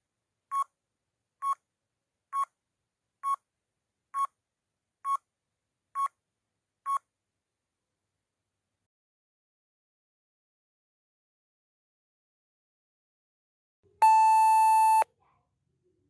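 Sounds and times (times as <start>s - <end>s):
short electronic beeps: 14.0s - 15.0s.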